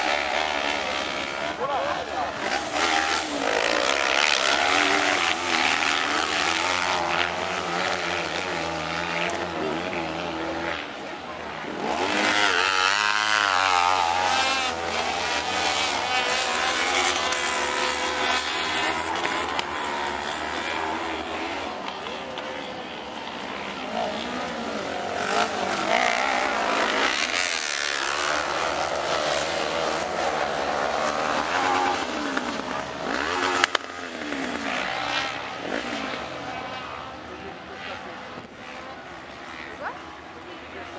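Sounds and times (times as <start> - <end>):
buggy engines revving: 0.0 - 40.9
buggy passing close: 0.0 - 40.9.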